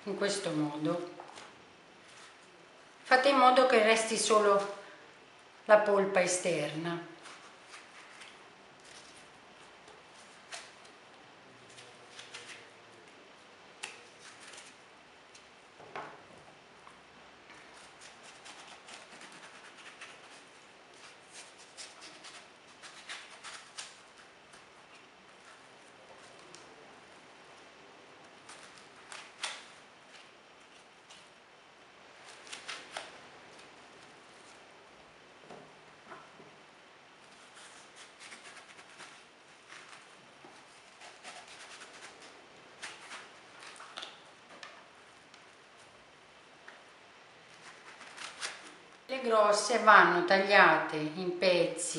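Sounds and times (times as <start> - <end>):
knife scraping gourd pulp: 17.7 - 26.6, 37.2 - 44.1.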